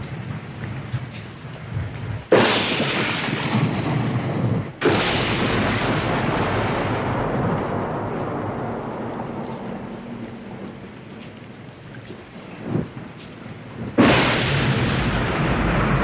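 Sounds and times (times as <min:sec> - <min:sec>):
loud booms with rumble: 0:01.8 - 0:10.3, 0:13.9 - 0:16.0.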